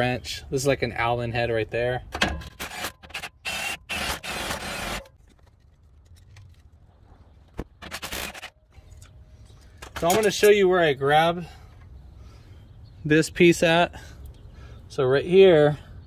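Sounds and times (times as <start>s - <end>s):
impact wrench bursts: 2.6s - 5.1s.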